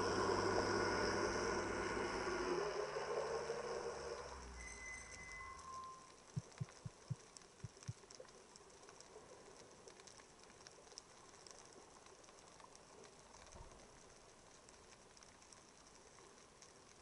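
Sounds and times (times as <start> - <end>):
faint underwater crackle: 0.0 - 17.0
soft low thumps: 6.4 - 8.0.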